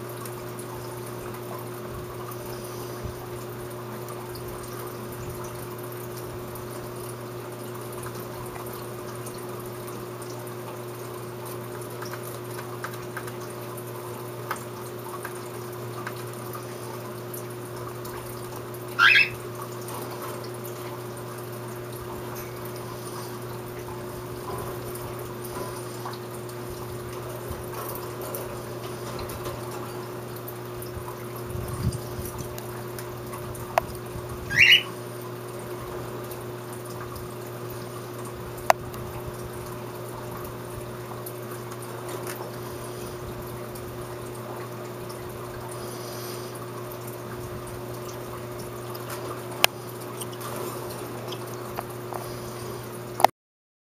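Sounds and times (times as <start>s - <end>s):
low hum and hiss: 0.0s - 53.3s
cockatiel chirp: 19.0s - 19.4s, 34.5s - 34.9s.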